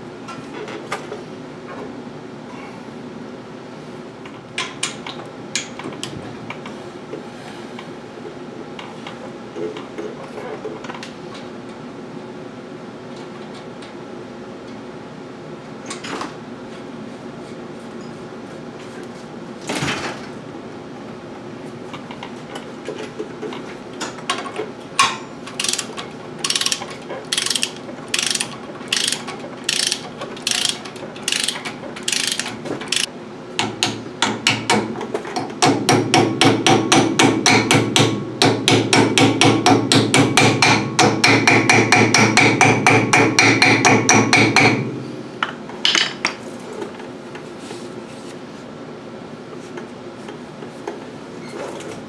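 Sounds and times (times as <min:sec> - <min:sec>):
ratchet wrench clicking: 0:25.6 - 0:33.1.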